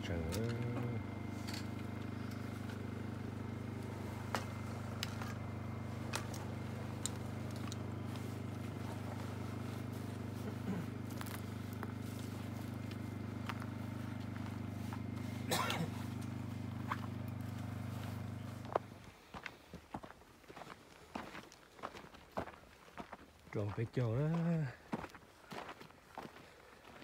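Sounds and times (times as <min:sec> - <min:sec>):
engine idling: 0:00.0 - 0:19.4.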